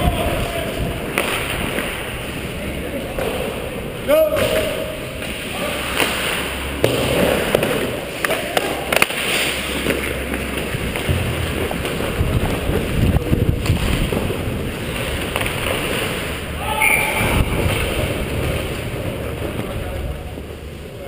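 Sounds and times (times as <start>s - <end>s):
skates scraping on ice: 0.3s - 3.7s, 4.6s - 21.0s
heavy low rumble: 16.4s - 21.0s.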